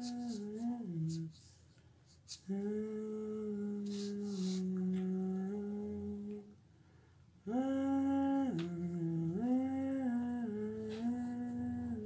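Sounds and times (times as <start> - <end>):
person humming: 0.0 - 1.5, 2.3 - 6.5, 7.4 - 12.0.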